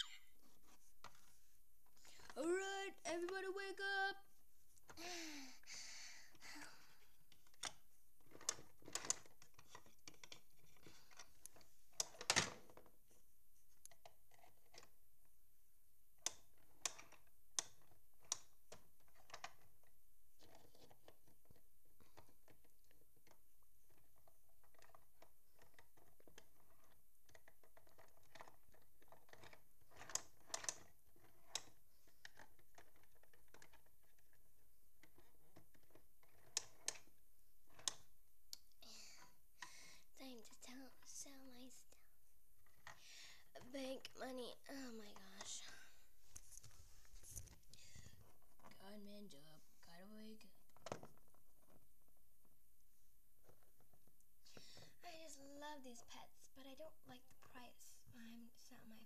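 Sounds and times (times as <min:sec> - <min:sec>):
plastic toys clicking and tapping: 0:06.3 - 0:13.0, 0:16.2 - 0:41.7.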